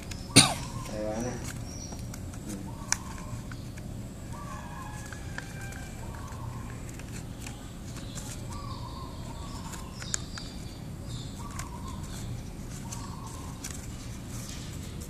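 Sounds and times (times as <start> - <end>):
bird calling: 0.0 - 14.4
paper crinkling being folded: 0.0 - 15.0
sharp paper crack: 4.8 - 15.0.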